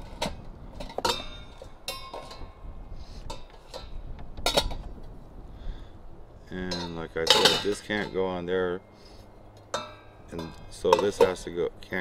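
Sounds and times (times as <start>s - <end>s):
metal pots clinking: 0.0s - 2.6s, 3.2s - 4.9s, 6.6s - 8.5s, 9.5s - 11.6s.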